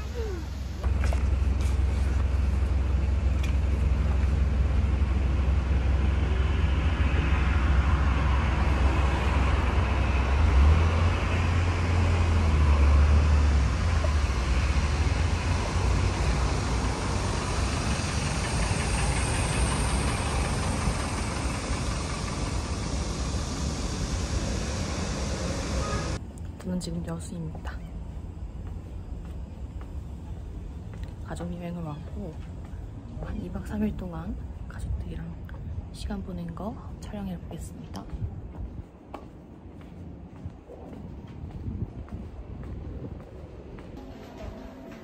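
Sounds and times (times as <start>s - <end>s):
road traffic: 0.0s - 26.6s
bus engine rumbling: 0.0s - 45.0s.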